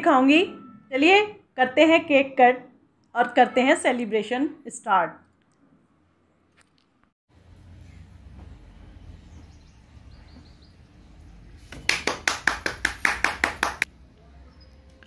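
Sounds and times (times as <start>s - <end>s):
hands clapping quickly: 11.7s - 13.9s.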